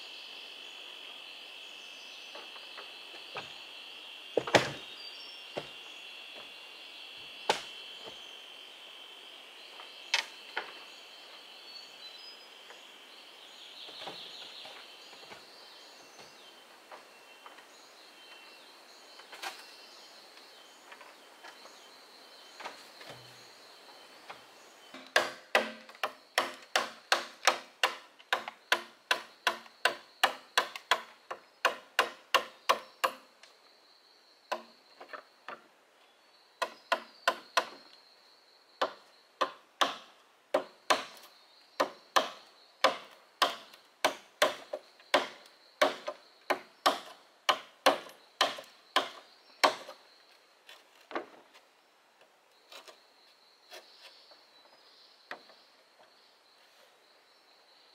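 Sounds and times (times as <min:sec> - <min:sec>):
machete chopping bamboo: 0:07.5 - 0:07.7, 0:25.0 - 0:33.2, 0:38.8 - 0:41.2, 0:41.8 - 0:50.0.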